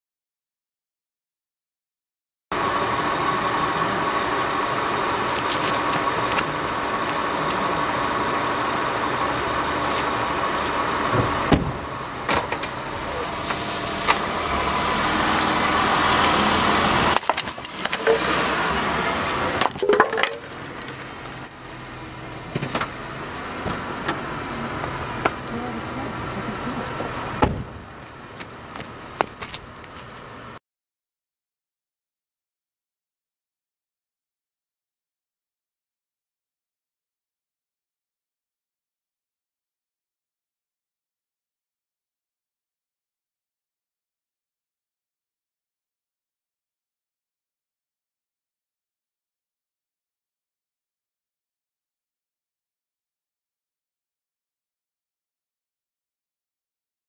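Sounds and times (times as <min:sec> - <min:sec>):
car engine running: 0:02.5 - 0:30.6
car tyres clicking on pavement: 0:04.7 - 0:30.6.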